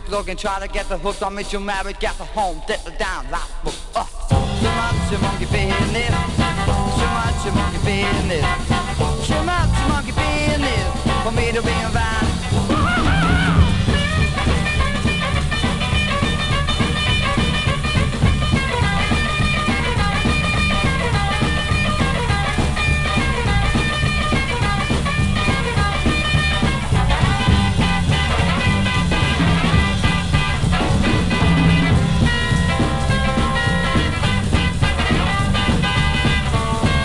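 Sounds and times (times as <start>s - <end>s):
rock and roll instrumental: 0.0s - 37.0s.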